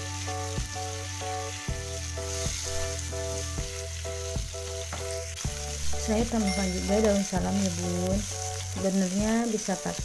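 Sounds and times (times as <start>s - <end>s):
background music: 0.0s - 10.0s
meat sizzling in frying pan: 0.0s - 10.0s.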